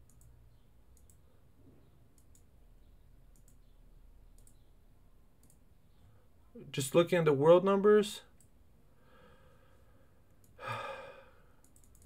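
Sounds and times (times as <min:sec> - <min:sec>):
faint sharp high clicks: 0:00.9 - 0:01.2, 0:02.1 - 0:02.5, 0:03.3 - 0:03.7, 0:04.3 - 0:04.6, 0:05.4 - 0:05.6, 0:11.6 - 0:12.0.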